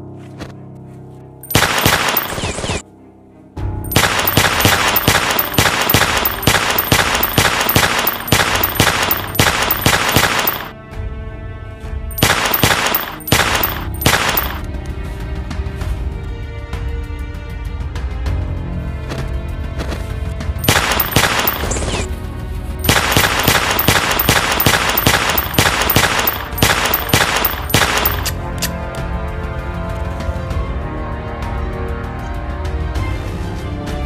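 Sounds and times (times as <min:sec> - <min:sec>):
background music: 0:00.0 - 0:34.0
rapid gunfire: 0:01.5 - 0:02.8, 0:03.9 - 0:10.7, 0:12.2 - 0:14.6, 0:20.6 - 0:22.1, 0:22.8 - 0:28.4.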